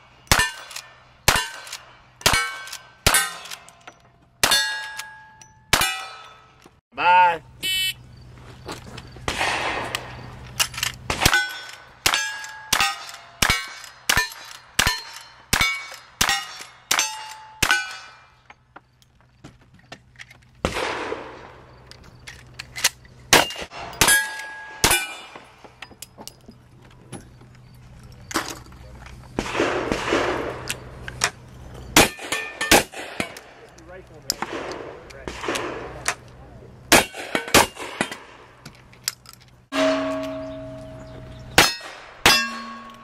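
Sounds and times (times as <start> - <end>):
gunshots: 9.3 - 10.3, 11.0 - 18.2, 20.6 - 21.6, 29.4 - 30.7, 32.0 - 33.6, 34.4 - 36.2, 36.9 - 38.5
steel target ringing: 23.4 - 25.4, 39.7 - 43.0.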